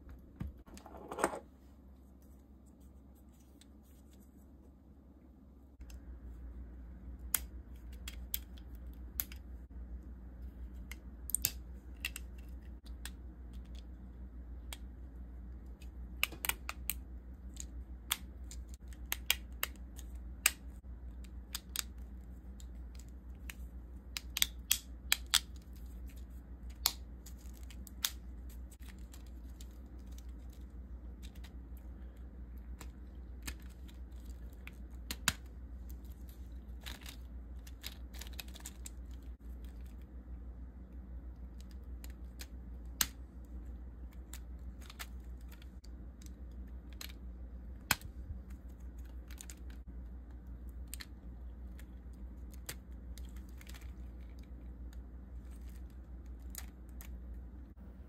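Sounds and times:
steady low hum: 0.0s - 58.0s
plastic parts clicking and snapping: 7.2s - 9.5s, 10.7s - 40.1s, 41.3s - 57.4s.

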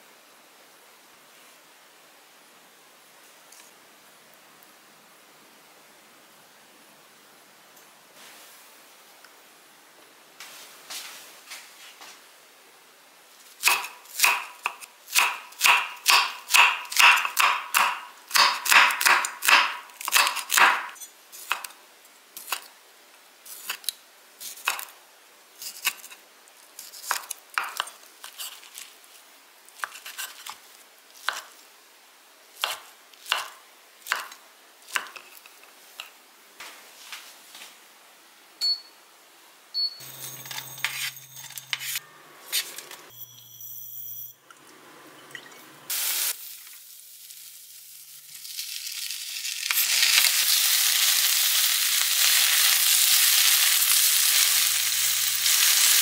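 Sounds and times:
knife chopping on wooden board: 13.7s - 20.9s.

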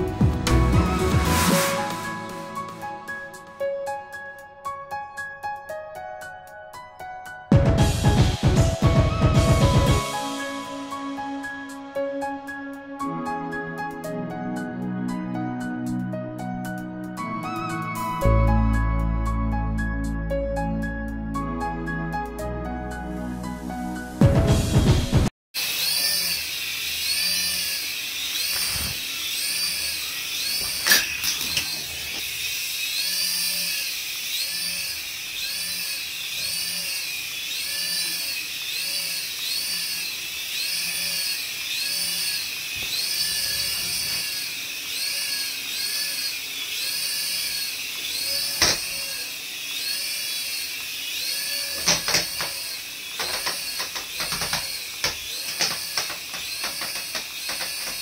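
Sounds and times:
toy helicopter motors whining: 25.6s - 58.0s.

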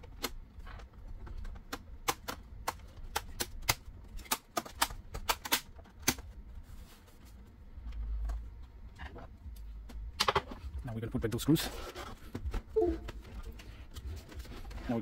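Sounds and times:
plastic clips snapping into place: 1.5s - 6.2s.

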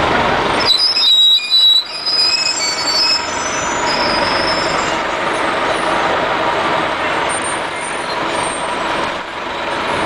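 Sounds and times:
street traffic noise: 0.0s - 10.0s
bus brake squeal: 0.6s - 6.0s.

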